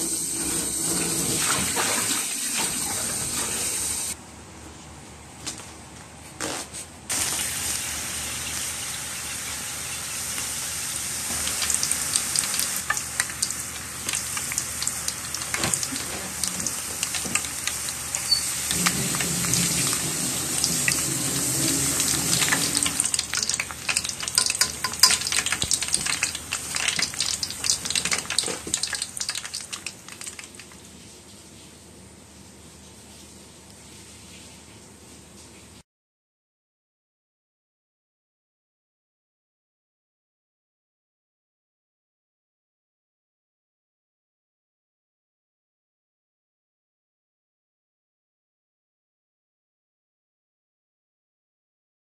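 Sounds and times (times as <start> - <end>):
tempura sizzling in hot oil: 7.1 - 30.8.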